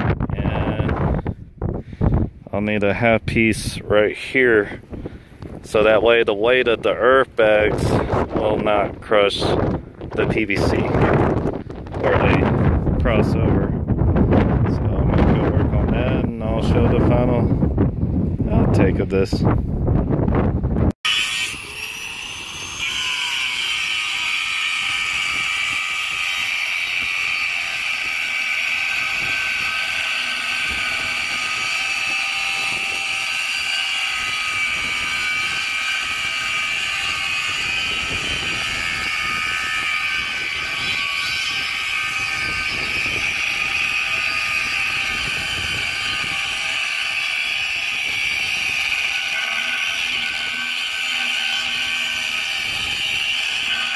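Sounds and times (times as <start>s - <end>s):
angle grinder cutting metal pipe: 21.0s - 53.9s.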